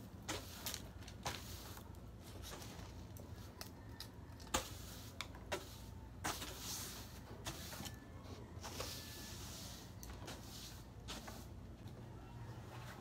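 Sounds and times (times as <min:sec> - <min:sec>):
broom swishing on wooden floor: 0:00.2 - 0:03.0, 0:04.5 - 0:08.0, 0:08.6 - 0:11.7.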